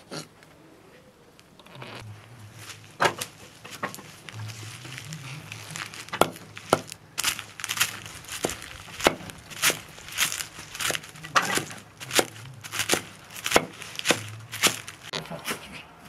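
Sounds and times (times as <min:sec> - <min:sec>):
knife chopping greens on wood: 0:06.1 - 0:06.9, 0:10.9 - 0:15.0.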